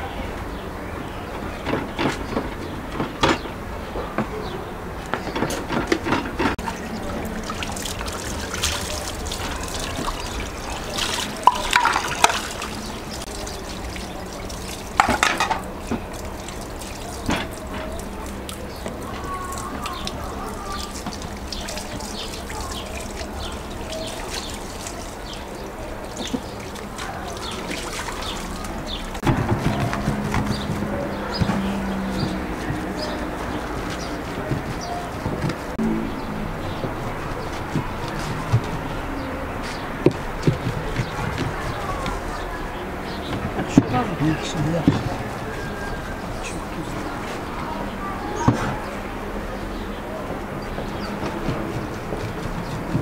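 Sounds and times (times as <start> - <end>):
wet squelching of minced meat: 6.6 - 15.0.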